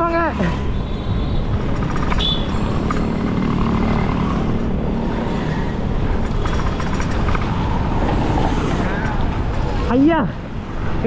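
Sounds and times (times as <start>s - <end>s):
rumbling road noise: 0.0s - 11.0s
passing vehicle engine hum: 1.9s - 9.9s.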